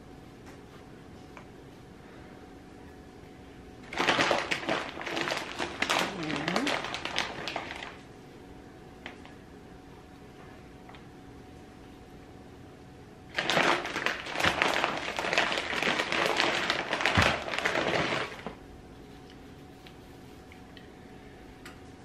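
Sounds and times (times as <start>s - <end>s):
plastic bag crinkling: 3.8s - 8.0s, 13.3s - 18.6s.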